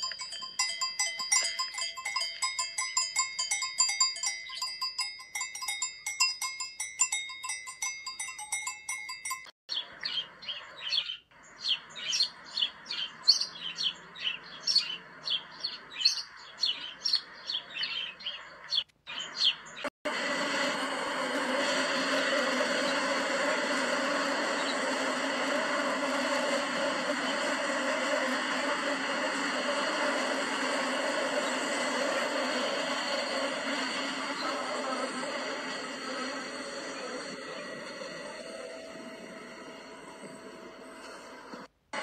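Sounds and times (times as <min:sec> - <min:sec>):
cowbells clanking: 0:00.0 - 0:09.6
birds chirping: 0:00.0 - 0:19.9, 0:21.4 - 0:41.5.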